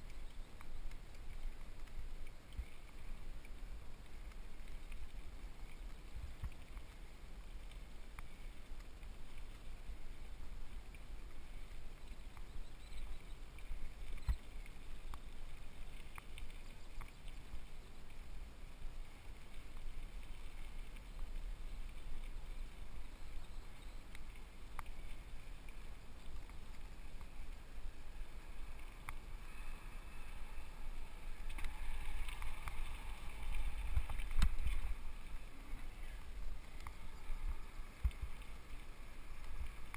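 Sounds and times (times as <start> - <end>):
wind and tyre rumble: 16.7 - 39.9.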